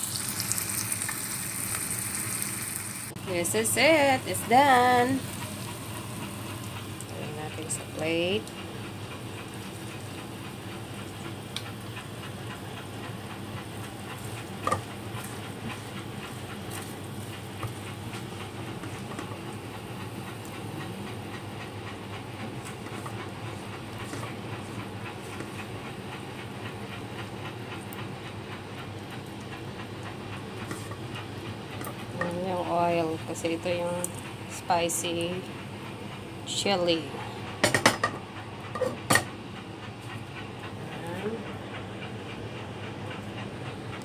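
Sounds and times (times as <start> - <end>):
oil sizzling in a frying pan: 0.0 - 8.4.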